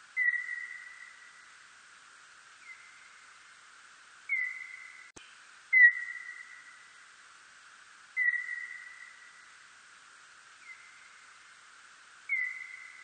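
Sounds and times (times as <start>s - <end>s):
faint hiss: 0.0s - 13.0s
whistle-like bat calls: 0.2s - 1.4s, 4.3s - 5.1s, 5.7s - 6.8s, 8.2s - 9.4s, 12.3s - 13.0s.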